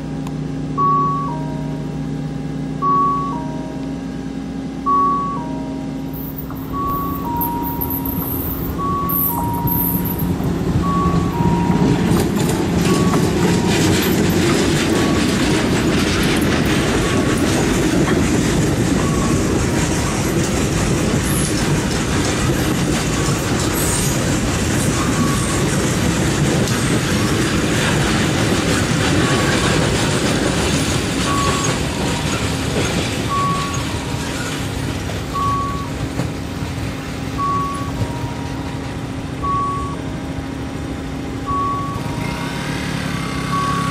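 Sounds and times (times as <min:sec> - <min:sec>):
level crossing two-note beep: 0:00.8 - 0:01.9, 0:02.8 - 0:04.1, 0:04.8 - 0:12.0, 0:37.4 - 0:38.8
freight train rolling past: 0:01.2 - 0:43.9.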